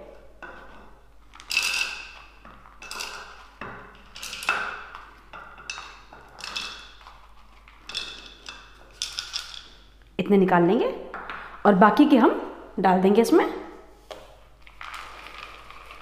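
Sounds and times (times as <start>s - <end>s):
nuts clattering in plastic bowls: 1.2s - 9.9s, 14.6s - 16.0s.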